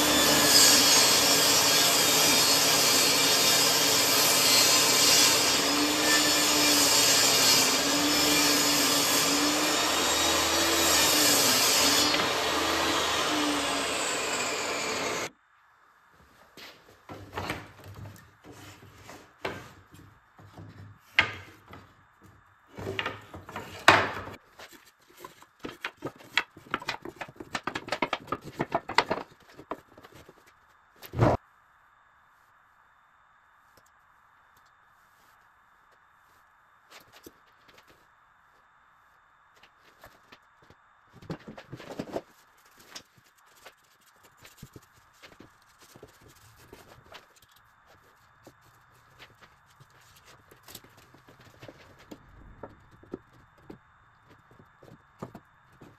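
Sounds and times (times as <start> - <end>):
gloved hand rubbing wood: 42.2 - 52.3.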